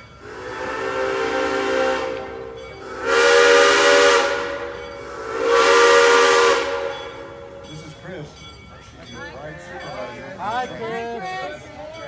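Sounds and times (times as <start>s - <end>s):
steam locomotive whistle: 0.0s - 7.9s
steam hissing: 0.2s - 8.0s.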